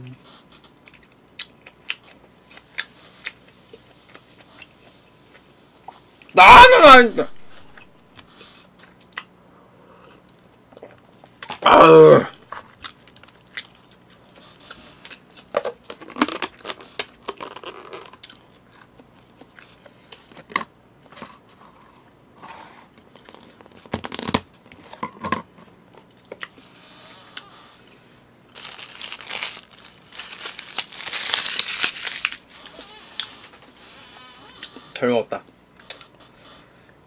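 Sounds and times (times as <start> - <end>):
plastic wrapping crinkling: 28.5 - 33.7.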